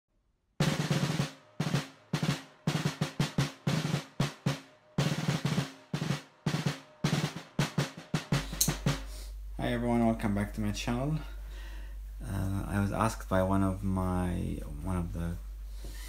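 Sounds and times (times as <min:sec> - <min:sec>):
drum pattern intro music: 0:00.6 - 0:09.6.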